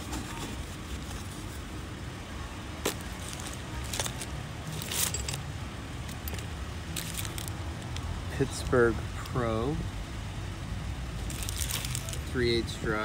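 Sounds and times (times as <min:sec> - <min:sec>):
rustles and clicks in fabric bag: 0:02.8 - 0:05.4.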